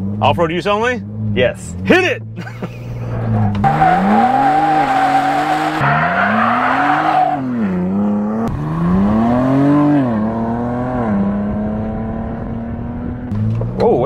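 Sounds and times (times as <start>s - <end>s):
engine accelerating at full throttle: 1.0s - 14.0s
tyre squealing: 3.2s - 7.6s.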